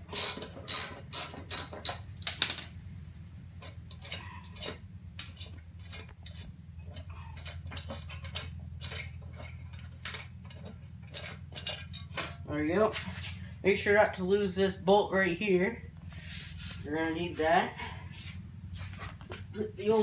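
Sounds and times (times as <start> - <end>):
metal scraping and clinking: 0.0 - 2.8, 3.6 - 13.4
ratchet clicking: 0.1 - 2.6.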